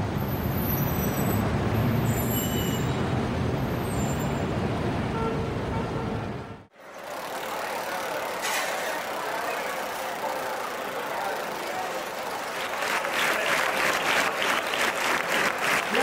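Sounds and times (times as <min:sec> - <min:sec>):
street traffic rumble: 0:00.0 - 0:16.0.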